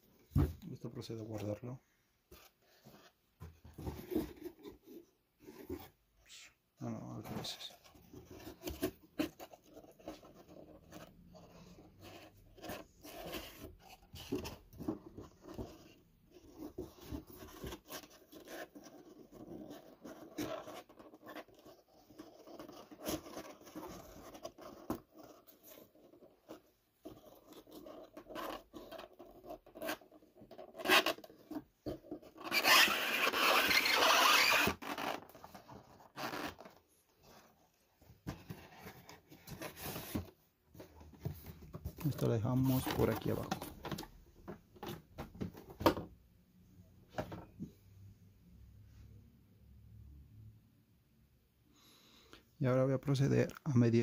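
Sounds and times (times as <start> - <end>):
loud rasping sound: 32.4 - 35.3.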